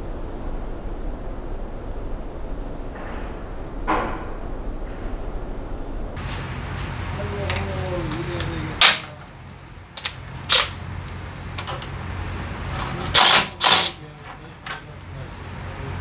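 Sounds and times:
steady low hum: 0.0s - 16.0s
power driver spinning bolts: 7.2s - 15.2s.

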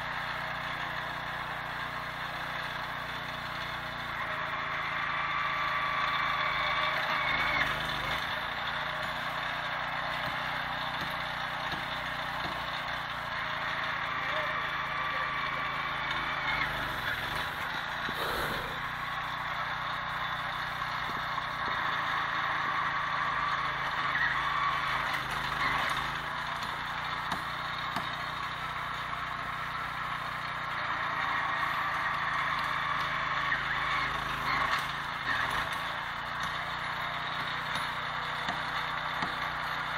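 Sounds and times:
small petrol engine running: 0.0s - 39.9s.

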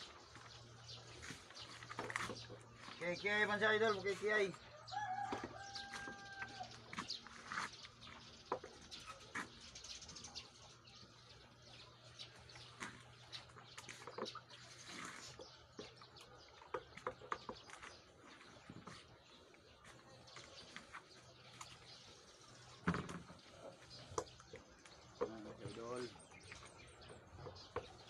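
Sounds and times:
small birds chirping: 0.0s - 28.0s
rooster crowing: 4.7s - 6.8s.

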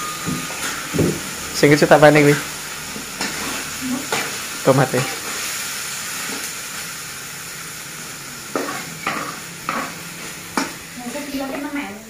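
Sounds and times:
metal spatula scraping a pan: 0.0s - 1.3s, 2.3s - 6.5s, 8.5s - 11.6s
food sizzling in a wok: 0.0s - 12.0s.

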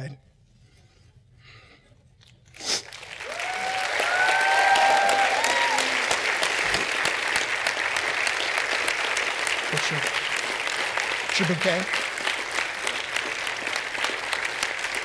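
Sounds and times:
crowd applause: 2.6s - 15.0s
crowd cheering and whooping: 3.0s - 7.3s.

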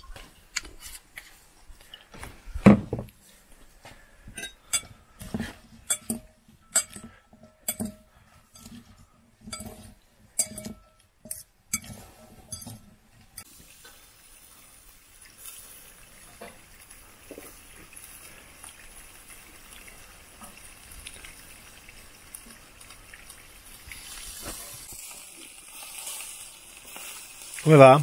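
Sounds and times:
tableware clinking and knocking: 2.6s - 3.1s, 4.4s - 8.8s, 9.5s - 12.9s.

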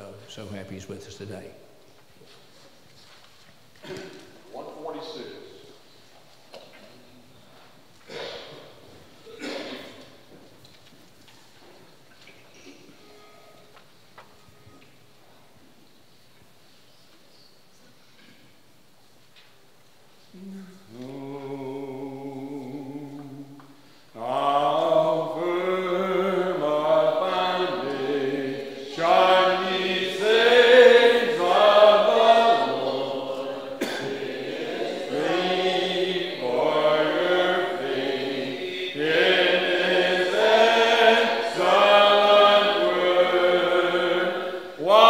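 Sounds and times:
congregation singing a hymn: 20.8s - 45.0s.

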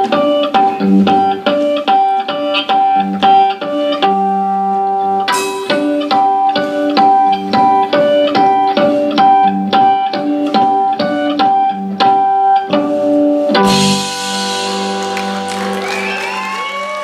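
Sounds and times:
blues band playing: 0.0s - 17.0s
cymbal crash: 5.3s - 6.6s, 13.7s - 16.5s.

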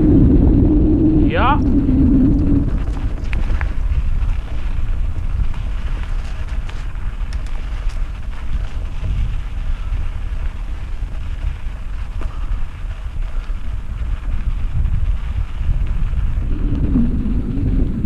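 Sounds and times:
wind buffeting microphone: 0.0s - 18.0s
faint ticks: 2.2s - 17.7s.

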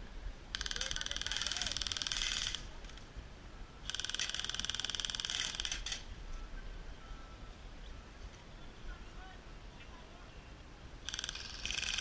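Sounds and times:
airsoft rifle firing full auto: 3.9s - 6.0s, 11.0s - 12.0s.

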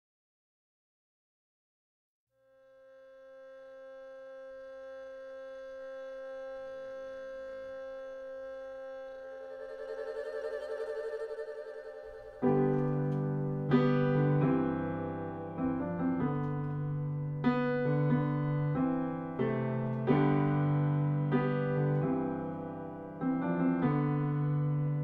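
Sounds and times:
slow piano chords: 9.6s - 25.0s.

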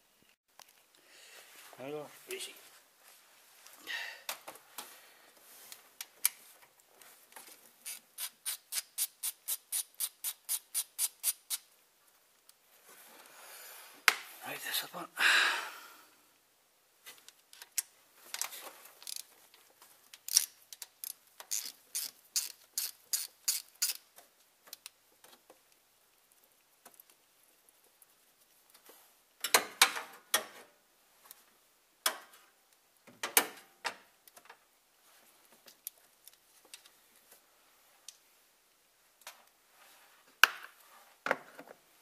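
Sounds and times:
hand ratchet clicking: 20.3s - 24.0s.

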